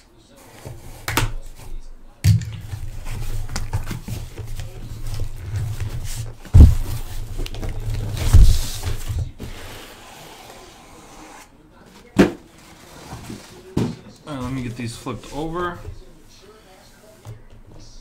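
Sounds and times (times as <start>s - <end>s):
cardboard scraping and rustling: 2.8s - 16.0s
heavy thumps of box set down: 5.8s - 9.3s.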